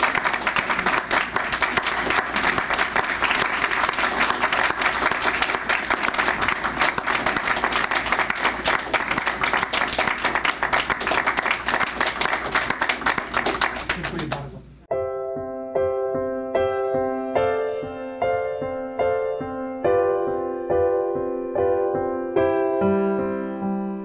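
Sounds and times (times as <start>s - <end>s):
crowd applauding: 0.0s - 14.6s.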